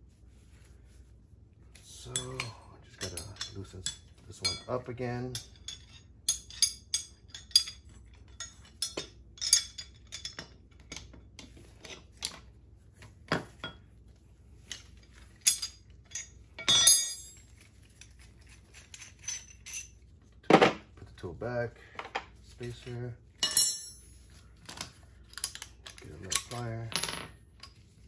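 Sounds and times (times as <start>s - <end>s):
wrenches clinking on metal: 2.1s - 12.4s, 14.6s - 20.0s, 23.4s - 24.2s, 25.3s - 27.0s.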